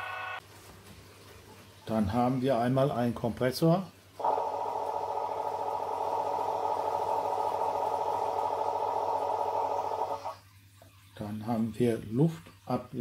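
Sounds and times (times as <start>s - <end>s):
locomotive air compressor running: 4.2s - 10.4s.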